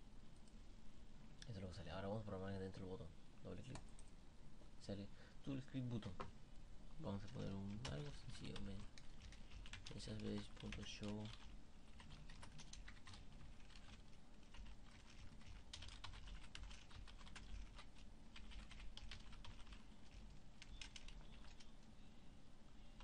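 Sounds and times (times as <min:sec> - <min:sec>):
computer keyboard typing: 0:07.1 - 0:21.9.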